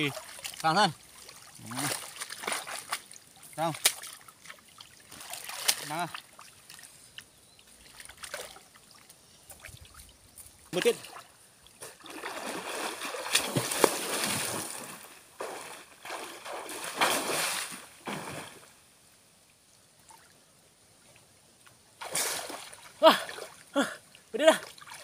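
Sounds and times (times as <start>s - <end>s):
water splashing and sloshing: 0.0s - 18.9s, 21.0s - 25.0s.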